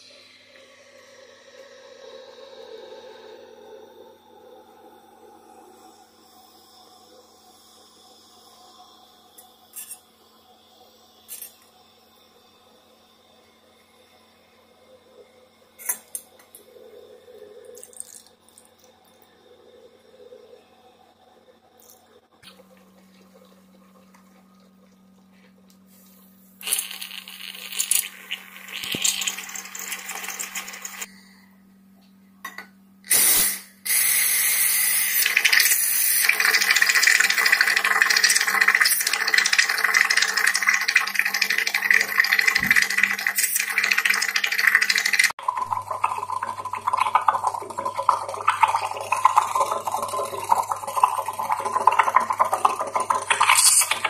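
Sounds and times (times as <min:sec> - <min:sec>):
steam wand frothing milk: 0:00.0 - 0:17.9, 0:25.3 - 0:31.1, 0:33.1 - 0:54.0
sputtering hissing steam: 0:33.1 - 0:39.6.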